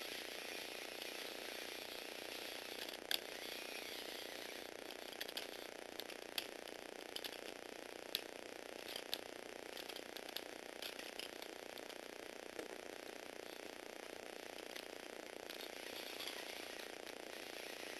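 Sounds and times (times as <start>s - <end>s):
steady hiss: 0.0s - 17.9s.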